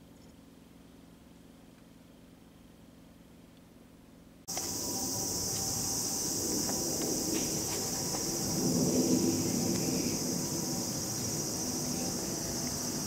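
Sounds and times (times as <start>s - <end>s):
insects chirring: 4.5s - 13.0s.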